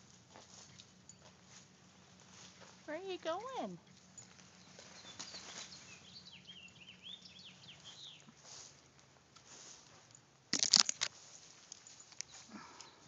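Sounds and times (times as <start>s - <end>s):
branches rustling and crackling: 0.0s - 6.5s, 7.6s - 13.0s
small birds chirping: 0.0s - 8.8s, 11.8s - 13.0s.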